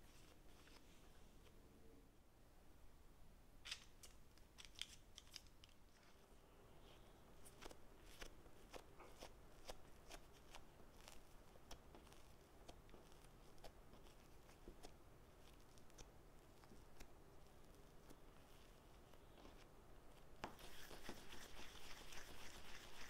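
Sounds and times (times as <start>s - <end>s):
paper rustle: 3.7s - 6.3s
hands shaping dough: 3.7s - 23.0s.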